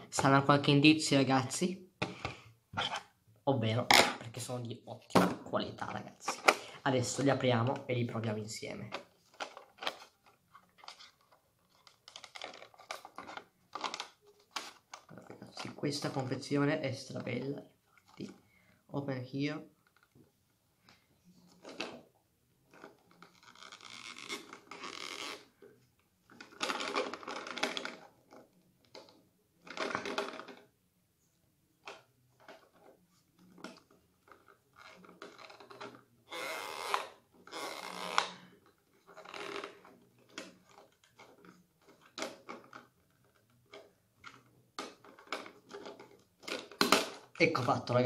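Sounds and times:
packaging rustling and tearing: 8.9 - 15.8, 22.7 - 25.6.

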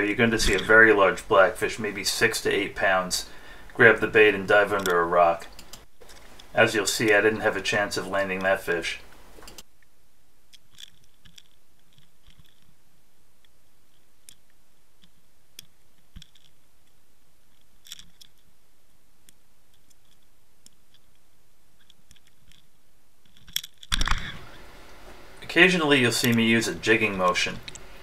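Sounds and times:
sharp underwater clicks: 4.8 - 6.5.

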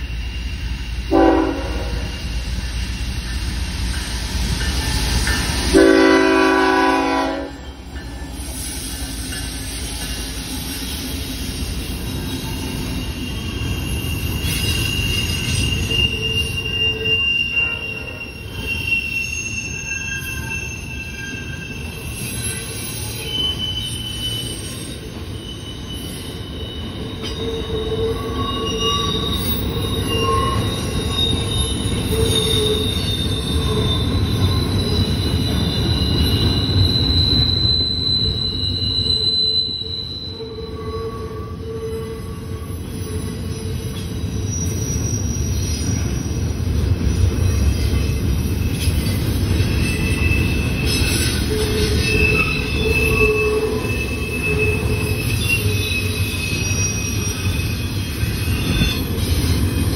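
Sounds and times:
freight train rumbling past: 0.0 - 59.9
train wheel squeal: 0.0 - 59.9
locomotive horn blast: 1.1 - 2.1, 5.7 - 7.6.

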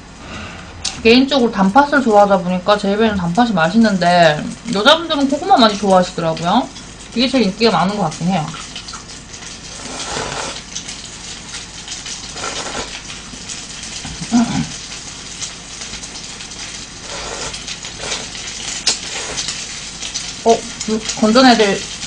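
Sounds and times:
oil sizzling in a frying pan: 1.0 - 22.0
slurping and chewing: 9.6 - 10.9, 12.2 - 13.5, 16.9 - 19.8.

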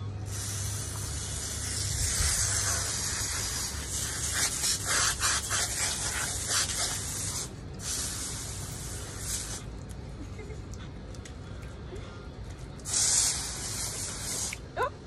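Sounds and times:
hose nozzle spraying water: 0.3 - 9.6, 12.8 - 14.7.

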